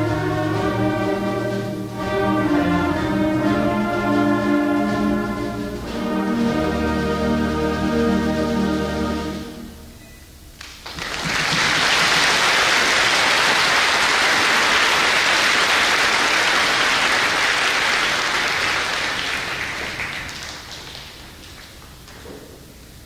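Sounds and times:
concert band chord: 0:00.0 - 0:10.2
audience applause: 0:10.6 - 0:22.2.

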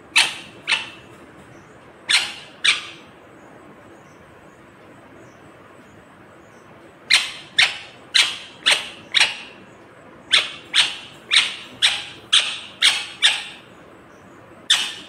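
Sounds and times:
parrot sharp calls: 0:00.1 - 0:01.2, 0:02.1 - 0:03.1, 0:07.1 - 0:09.6, 0:10.3 - 0:13.7, 0:14.7 - 0:15.0.

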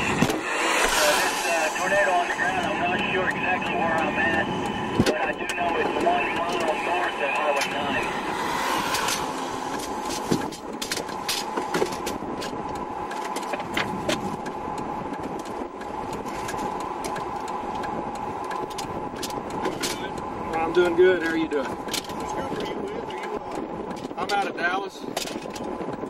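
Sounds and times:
sharp clicks and ticks: 0:00.0 - 0:26.0
vehicle engine humming: 0:00.0 - 0:26.0.

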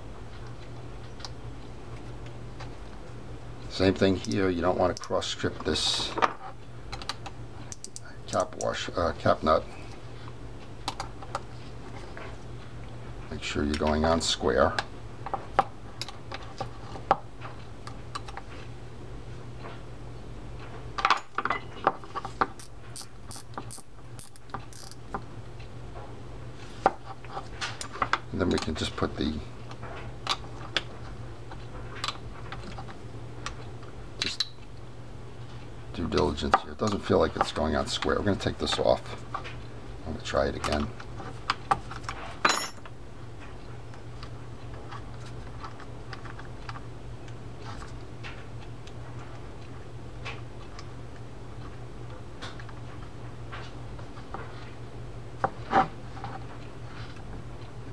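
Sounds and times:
low steady hum: 0:00.0 - 0:57.9
fishing reel metal clicks: 0:22.6 - 0:25.0.

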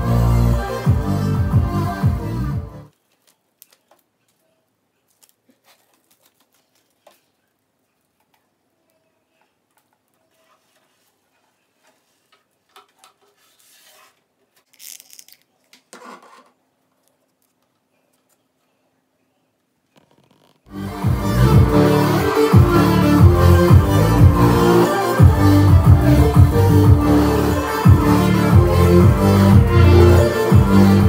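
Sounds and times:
rustling: 0:02.9 - 0:18.8.

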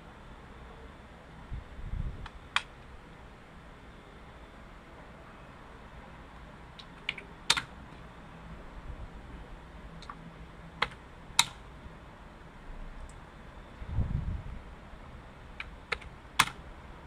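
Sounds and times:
computer keyboard keystrokes: 0:06.8 - 0:07.7, 0:10.8 - 0:11.6, 0:15.6 - 0:16.6.

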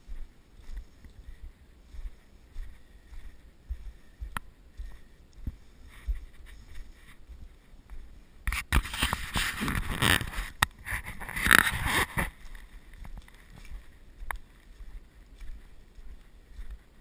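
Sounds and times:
faint ticks: 0:00.6 - 0:06.9, 0:12.4 - 0:17.0
rubbing against camera: 0:05.8 - 0:07.3, 0:08.5 - 0:12.4.

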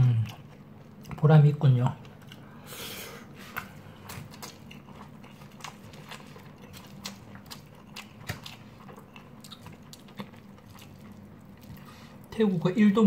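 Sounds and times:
person chewing rice: 0:00.0 - 0:12.4
air conditioner hum: 0:00.0 - 0:13.0.

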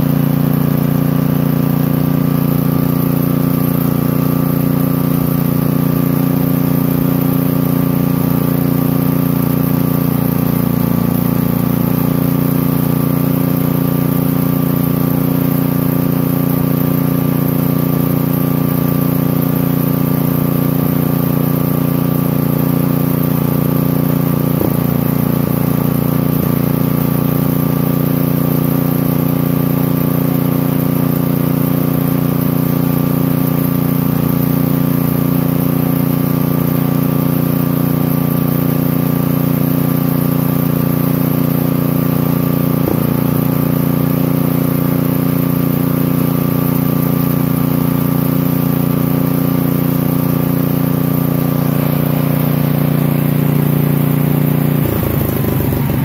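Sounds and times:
single-cylinder engine running: 0:00.0 - 0:56.0.

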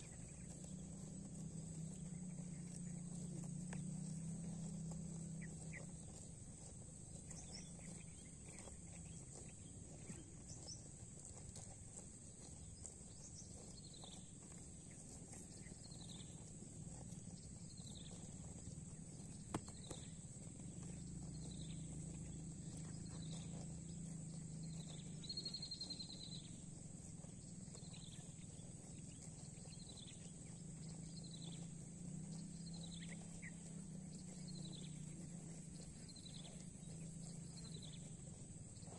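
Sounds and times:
steady low hum: 0:00.0 - 0:38.9.

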